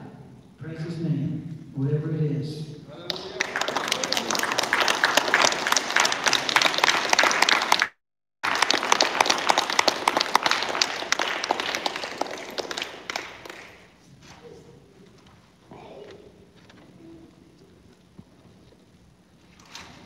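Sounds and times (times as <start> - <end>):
audience applauding: 3.0 - 14.0.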